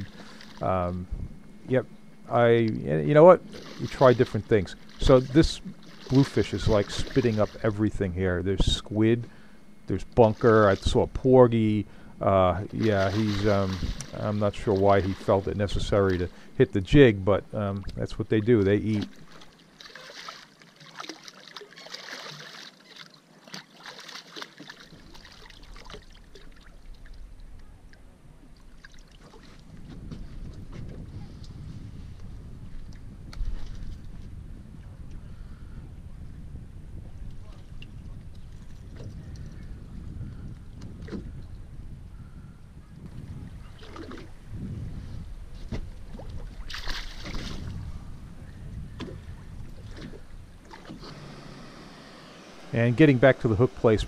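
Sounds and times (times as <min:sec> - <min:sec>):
low rumble: 0:00.0 - 0:19.5, 0:29.6 - 0:50.7
fish splashing in water: 0:03.4 - 0:07.8, 0:12.6 - 0:16.5, 0:18.9 - 0:27.2, 0:28.6 - 0:29.6, 0:46.2 - 0:47.7.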